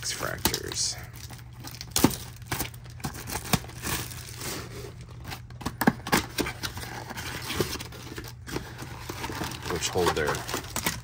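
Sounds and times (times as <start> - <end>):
cardboard rustling and scraping: 2.6 - 11.0.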